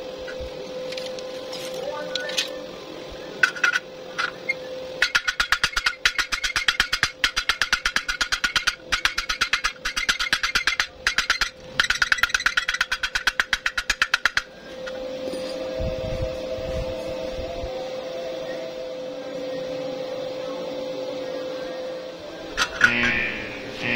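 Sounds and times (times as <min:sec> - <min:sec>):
steady hum: 0:00.0 - 0:23.9.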